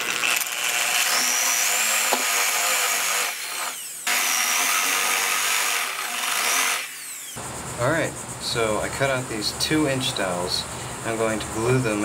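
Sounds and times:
power drill boring into wood: 0.0s - 7.4s.

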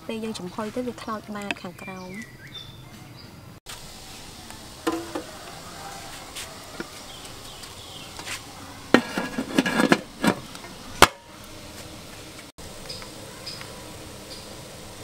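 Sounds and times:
metal lid clank: 4.8s - 5.3s, 8.9s - 10.4s
metal pot lid clattering: 4.9s - 5.3s, 8.9s - 10.4s.

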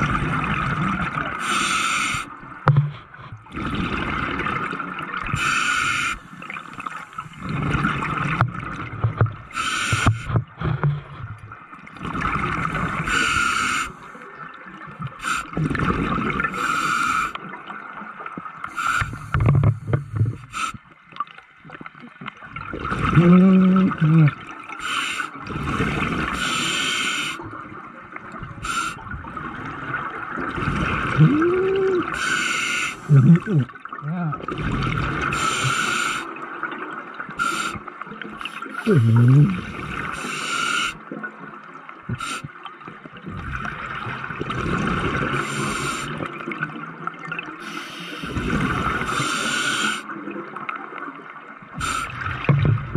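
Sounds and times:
exhaust bubbles gushing: 0.0s - 1.4s, 15.0s - 16.6s, 28.2s - 32.2s, 43.2s - 47.6s
regulator hiss on inhale: 1.4s - 2.3s, 5.4s - 6.4s, 9.5s - 10.4s, 13.0s - 14.2s, 16.6s - 17.4s, 18.6s - 20.8s, 24.8s - 25.4s, 26.4s - 27.4s, 28.6s - 29.0s, 32.2s - 33.1s, 35.3s - 36.3s, 37.4s - 37.8s, 40.0s - 41.0s, 42.2s - 42.5s, 45.4s - 46.2s, 47.6s - 48.5s, 49.1s - 50.1s.

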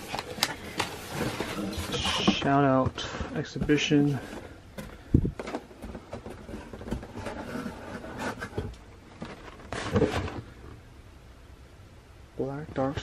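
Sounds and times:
paper rustling: 0.0s - 4.5s
scrapes and light knocks: 0.0s - 10.6s.

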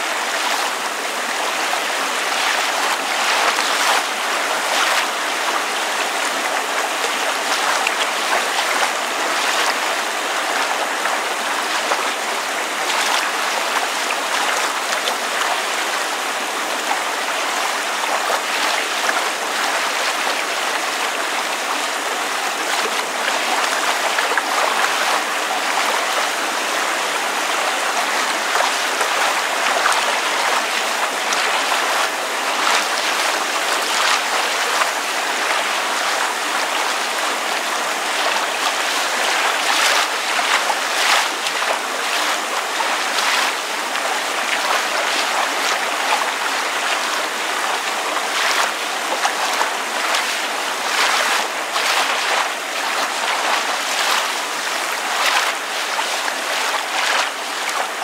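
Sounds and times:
water lapping and splashing: 0.0s - 58.0s
rain falling: 16.8s - 58.0s.

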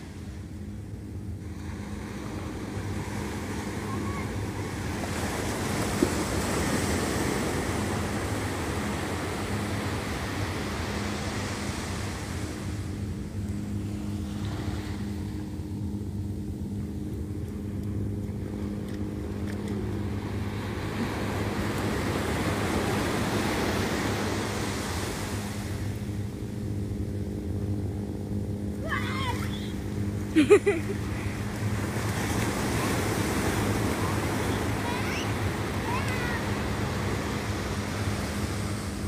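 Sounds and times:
small waves breaking on beach: 0.0s - 16.3s, 18.5s - 39.0s
low motor hum: 0.0s - 39.0s.

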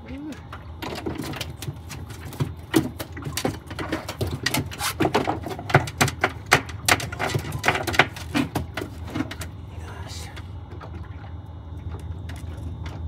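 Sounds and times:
low steady hum: 0.0s - 13.0s
rapid clicking and knocking: 0.8s - 9.4s.

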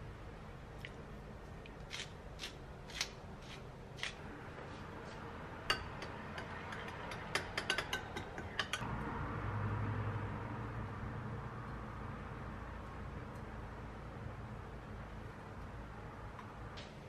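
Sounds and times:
pepper mill grinding: 1.9s - 4.2s
utensil clinking glass bowl: 5.7s - 8.8s.

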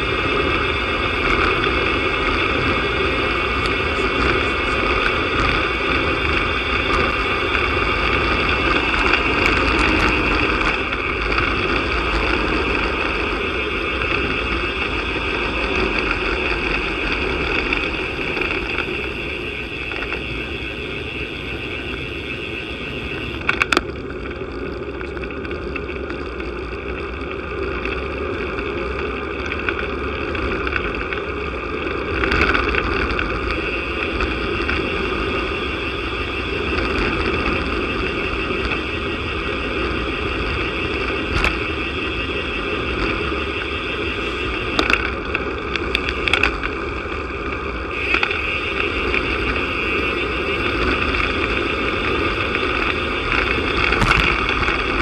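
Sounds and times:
tyres running on asphalt: 0.0s - 55.0s
wind rushing over camera: 0.0s - 55.0s
sharp knocks from road bumps: 53.9s - 54.6s.

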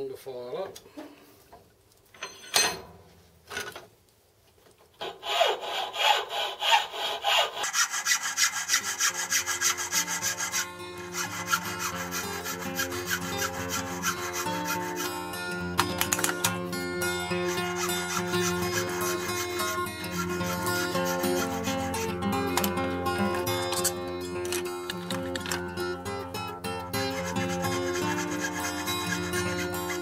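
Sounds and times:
hand file rasping on metal: 5.0s - 30.0s
background music: 9.6s - 30.0s.

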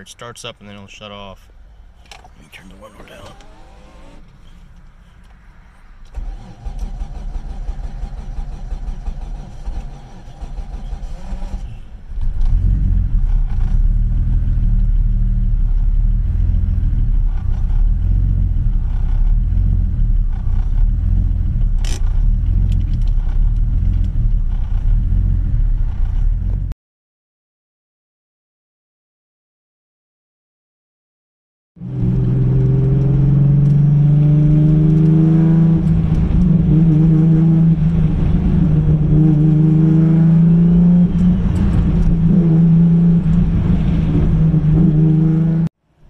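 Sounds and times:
car engine cranking: 2.0s - 4.5s, 6.0s - 14.2s, 17.1s - 26.7s, 32.0s - 45.6s
car engine running: 6.2s - 26.7s.

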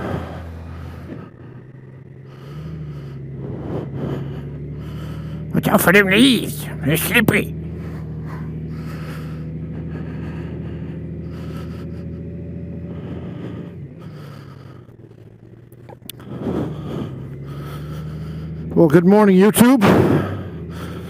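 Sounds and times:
motorcycle engine humming: 0.0s - 21.0s.

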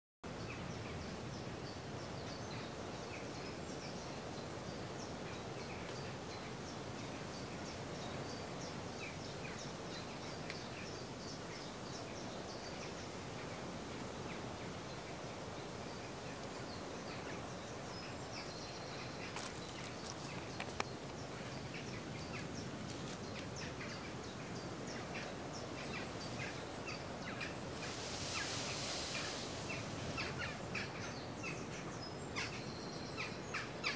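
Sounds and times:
distant sea surf: 0.3s - 32.6s
small birds chirping: 0.4s - 33.9s
wind rushing: 24.9s - 31.1s.

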